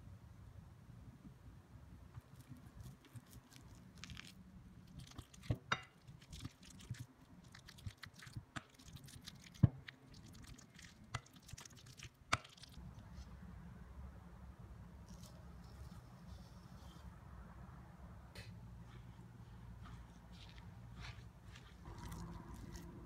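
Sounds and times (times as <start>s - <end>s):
bananas squishing: 2.2s - 13.3s, 19.8s - 23.0s.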